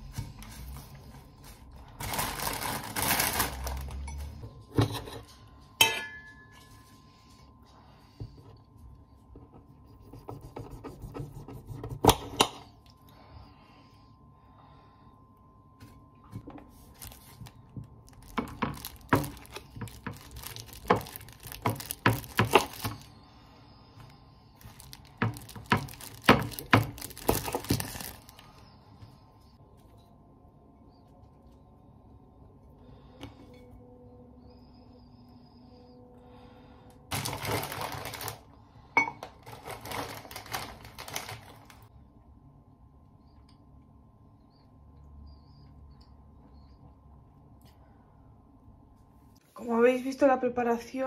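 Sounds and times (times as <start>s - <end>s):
paper wrapper rustling: 0.0s - 4.4s, 16.6s - 23.2s, 24.6s - 28.6s, 37.1s - 38.5s, 39.2s - 41.9s
plastic bag crinkling: 0.4s - 4.4s, 16.7s - 23.2s, 24.6s - 28.6s, 37.1s - 38.6s, 39.2s - 41.9s.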